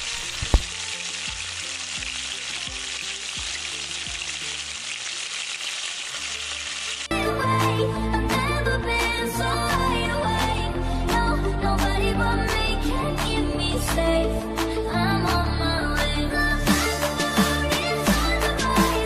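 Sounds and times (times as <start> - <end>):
chicken frying in hot oil: 0.0 - 7.1
music: 0.0 - 19.0.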